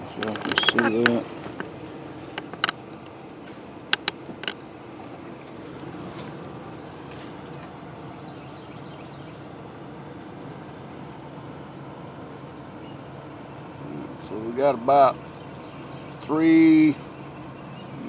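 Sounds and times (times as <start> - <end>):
high-pitched insect drone: 0.0 - 18.0
low background rumble: 0.0 - 18.0
sharp clicks: 0.1 - 1.7, 2.3 - 4.6.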